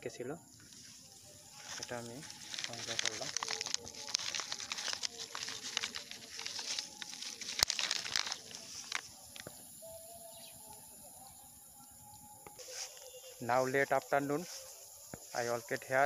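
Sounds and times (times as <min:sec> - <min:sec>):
snack packets crinkling: 0:01.3 - 0:09.7.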